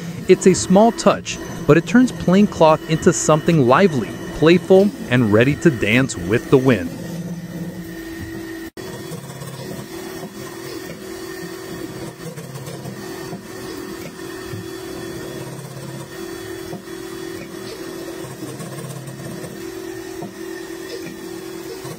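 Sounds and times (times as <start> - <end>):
low machine drone: 0.0 - 8.6
fringing machine mechanical hum: 0.0 - 21.9.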